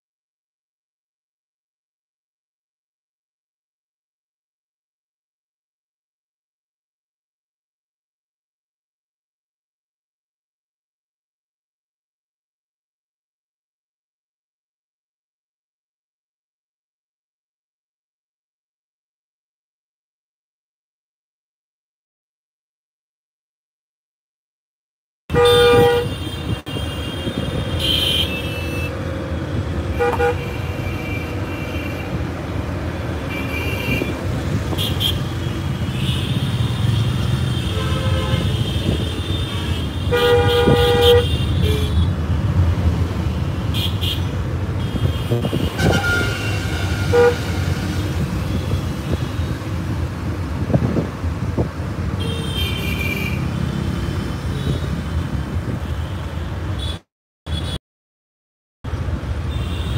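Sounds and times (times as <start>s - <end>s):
car horns honking: 25.3s - 29.0s, 29.8s - 32.3s, 33.0s - 42.2s, 43.5s - 49.6s
engine and road noise rumble: 25.3s - 57.0s, 58.9s - 59.9s.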